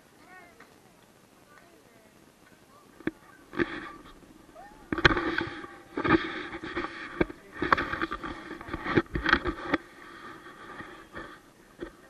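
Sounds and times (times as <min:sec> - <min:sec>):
microphone rustling and rubbing: 0:03.0 - 0:12.0.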